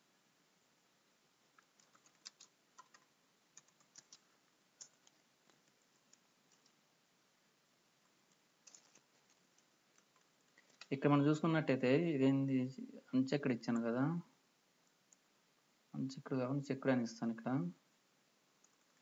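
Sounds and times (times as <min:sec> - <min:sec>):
faint keyboard typing: 0:01.4 - 0:06.9, 0:08.0 - 0:11.1, 0:14.8 - 0:15.4, 0:18.5 - 0:19.0.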